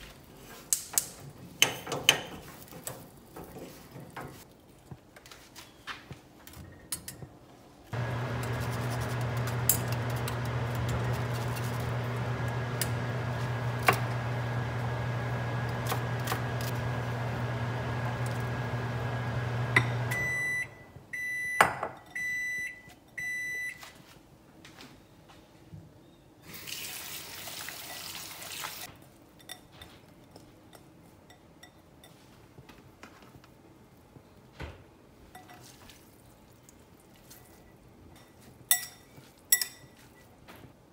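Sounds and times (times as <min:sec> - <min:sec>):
kitchen tap running: 0:08.0 - 0:20.2, 0:26.5 - 0:28.9
microwave oven humming: 0:08.0 - 0:20.8
microwave beeps: 0:11.9 - 0:23.8.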